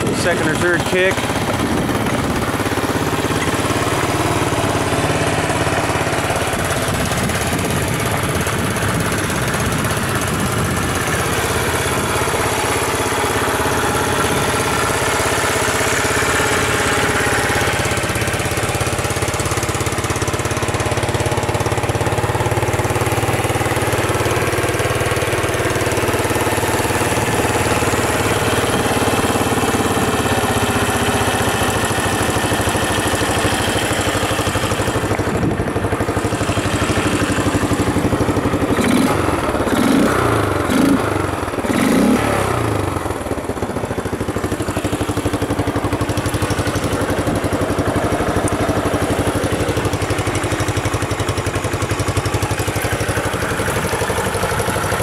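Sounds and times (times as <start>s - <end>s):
motorcycle engine idling: 0.0s - 55.0s.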